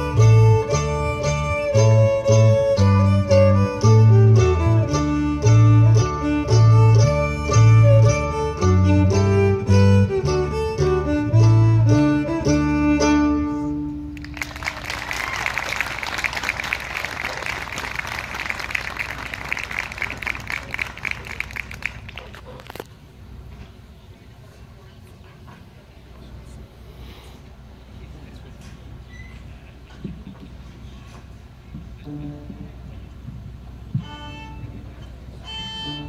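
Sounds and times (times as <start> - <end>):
lively fiddle guitar and piano tune: 0.0 - 14.2, 30.8 - 36.0
audience applause: 14.2 - 22.7.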